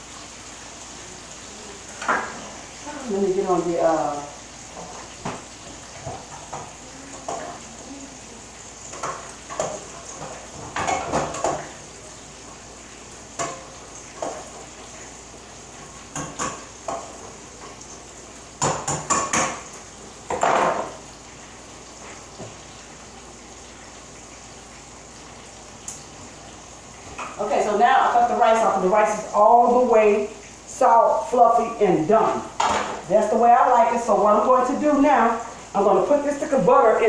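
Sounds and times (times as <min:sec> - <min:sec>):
meat sizzling in a skillet: 0:00.0 - 0:37.0
pots and pans clattering: 0:02.0 - 0:02.6, 0:04.7 - 0:07.7, 0:08.8 - 0:12.0, 0:13.3 - 0:14.8, 0:15.7 - 0:18.0, 0:18.6 - 0:21.0, 0:27.1 - 0:27.4, 0:32.5 - 0:33.1.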